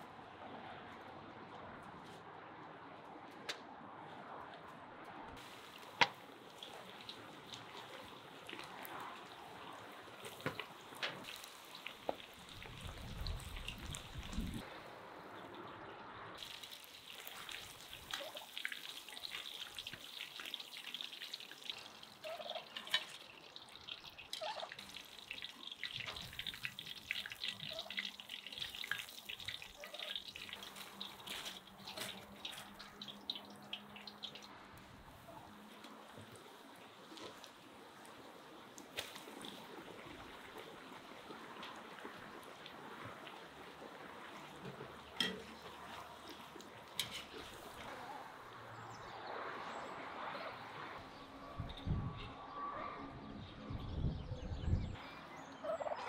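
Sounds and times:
oil sizzling with crackling pops: 5.4s - 14.6s, 16.4s - 34.5s, 35.8s - 48.0s.

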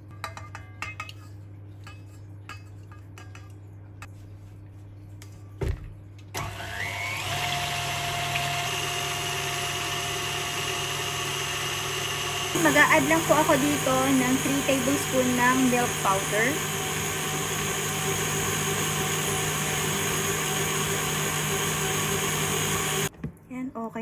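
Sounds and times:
stand mixer motor running: 6.4s - 23.1s
wire whisk beating cream: 10.6s - 23.1s.

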